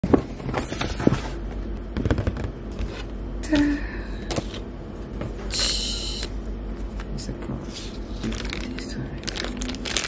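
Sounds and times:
paper bag rustling: 7.7 - 10.0.

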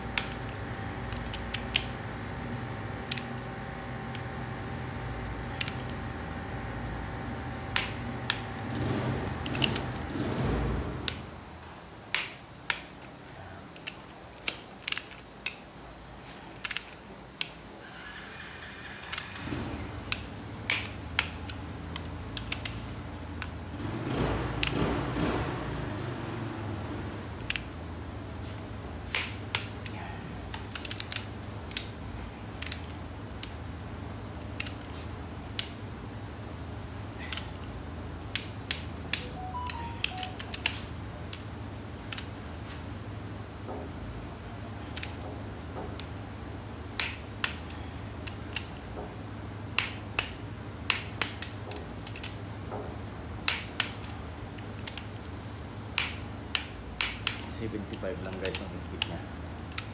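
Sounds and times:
metal tools clicking and clinking: 19.1 - 22.8.

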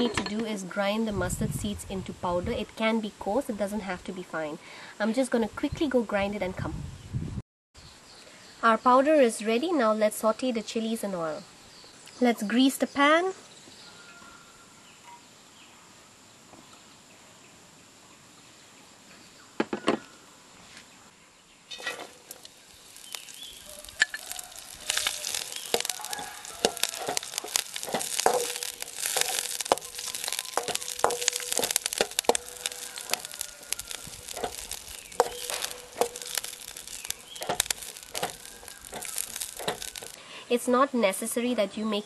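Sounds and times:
wooden spatula scraping a wok: 21.7 - 40.2
chillies sizzling in hot oil: 21.7 - 40.7.

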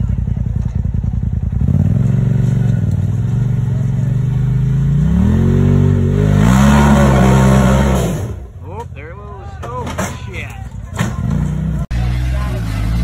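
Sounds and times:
engine revving under load: 1.5 - 8.5.

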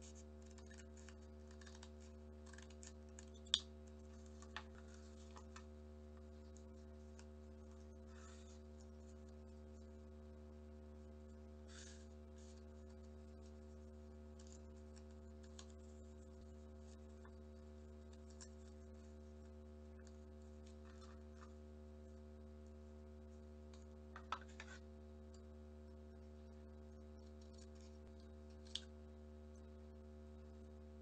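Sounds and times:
scissors snipping paper: 0.0 - 5.6
paper rustling and creasing: 0.0 - 8.7
steady low hum: 0.0 - 31.0.

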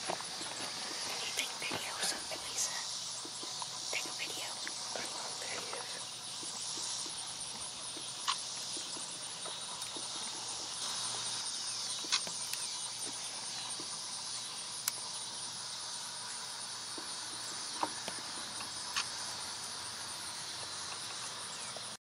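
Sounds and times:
crickets and insects chirping: 0.0 - 22.0
sharp clicks: 18.0 - 19.2.

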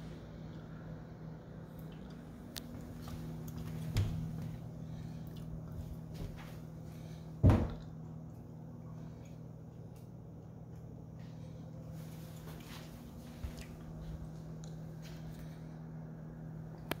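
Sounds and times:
steady low hum: 0.0 - 17.0
door thump: 7.4 - 7.8.

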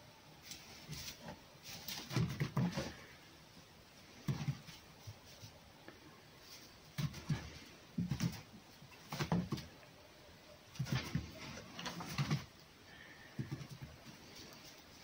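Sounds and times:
fox scuffling in straw: 0.4 - 2.2.

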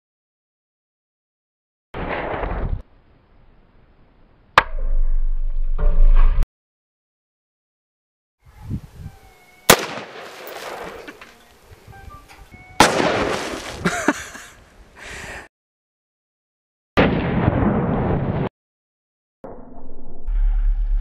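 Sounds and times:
burst of noise with sharp crack: 2.0 - 2.9, 12.8 - 13.8
rifle shot with echo: 9.7 - 11.0, 12.8 - 13.4.

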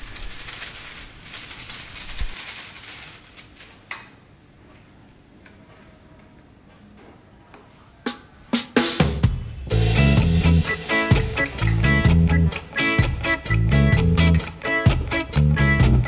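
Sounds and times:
plastic bag crinkling: 0.0 - 4.0.

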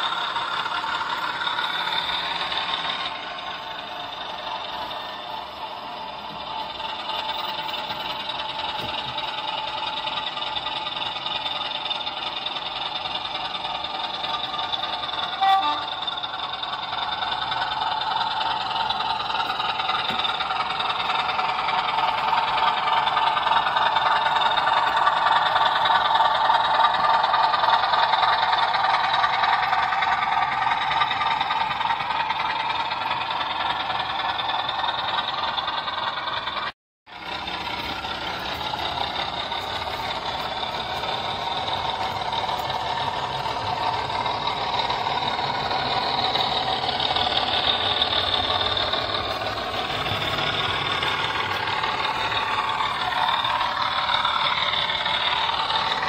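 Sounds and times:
model locomotive diesel engine sound: 0.0 - 56.0.

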